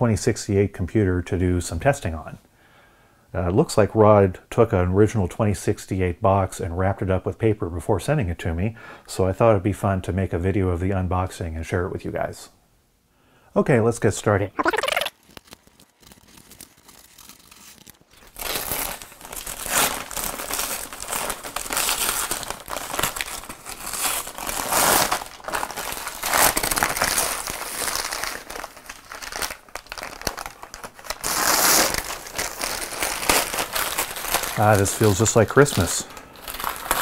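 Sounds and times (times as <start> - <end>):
paper crinkling and tearing: 14.6 - 37.0.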